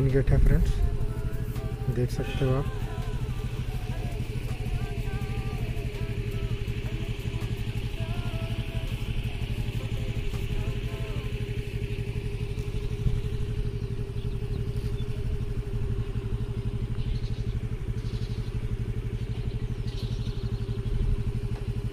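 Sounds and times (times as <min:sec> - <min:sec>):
motorcycle engine idling: 0:00.0 - 0:21.9.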